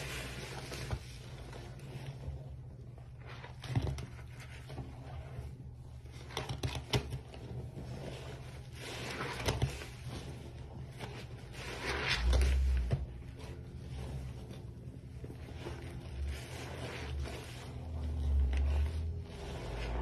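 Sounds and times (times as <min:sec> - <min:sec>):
soapy sponge squelching: 0:00.0 - 0:20.0
steady low hum: 0:12.1 - 0:20.0.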